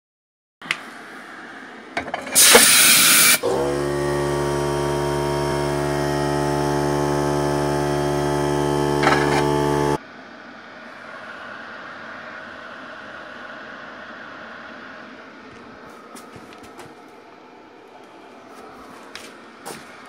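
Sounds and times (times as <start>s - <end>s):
loud hiss: 2.3s - 3.4s
electric gear motor humming: 2.4s - 10.0s.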